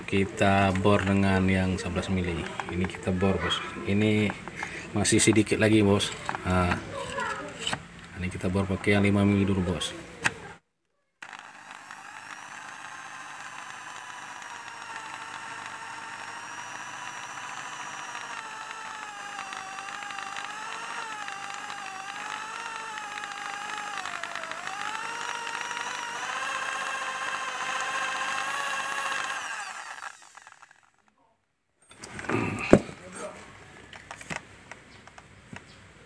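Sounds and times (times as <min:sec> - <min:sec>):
electric drill drilling metal: 0:00.0 - 0:07.8, 0:11.2 - 0:31.1.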